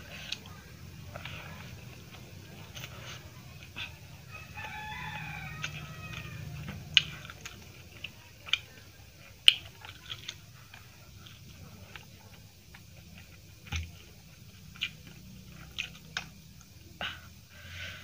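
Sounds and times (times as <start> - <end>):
rooster crowing: 4.2 - 7.1
mouth clicks and smacks of eating: 5.3 - 17.4.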